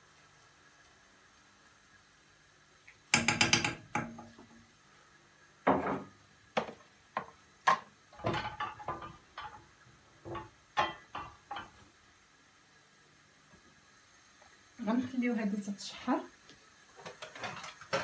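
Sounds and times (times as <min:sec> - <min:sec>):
spoon clacking against cooking pot: 0:03.1 - 0:04.3
kitchen utensils clattering: 0:07.7 - 0:11.8, 0:17.0 - 0:18.0.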